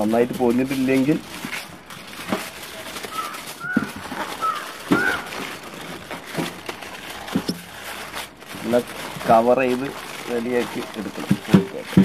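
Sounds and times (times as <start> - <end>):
aluminium foil crinkling: 0.0 - 12.0
bird chirps: 3.1 - 5.3.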